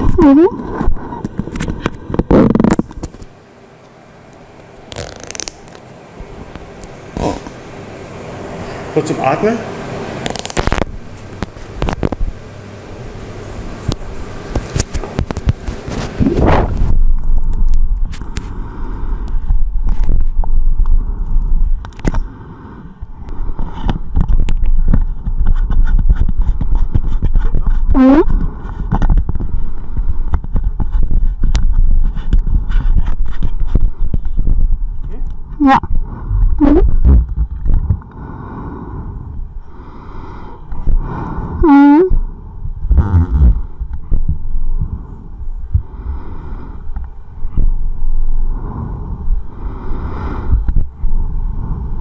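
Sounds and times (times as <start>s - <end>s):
heavy low rumble: 0.0s - 52.0s
breathing through respirator mask: 18.2s - 20.1s, 22.0s - 34.6s, 37.9s - 42.6s, 43.2s - 52.0s.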